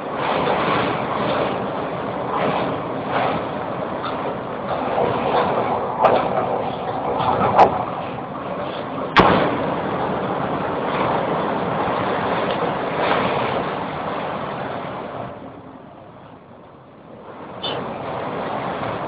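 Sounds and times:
heavy sea rushing: 0.0s - 19.0s
wind: 0.0s - 19.0s
sharp bang: 9.2s - 9.7s.

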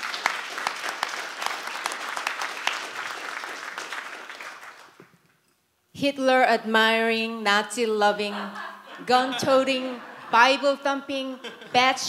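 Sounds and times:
audience applauding: 0.0s - 5.1s.

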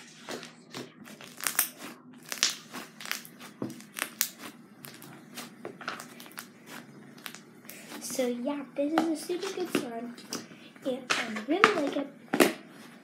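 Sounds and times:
slime squishing with clicks and pops: 0.7s - 6.6s, 7.2s - 7.8s.

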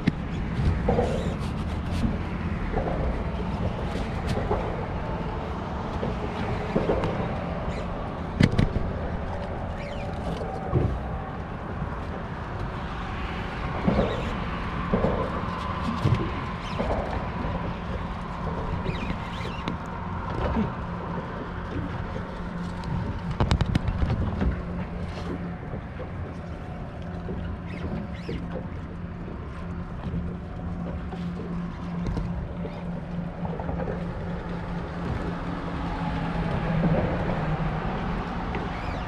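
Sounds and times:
boat motor hum: 0.0s - 39.0s
water noise: 0.0s - 39.0s
wind: 0.0s - 39.0s.

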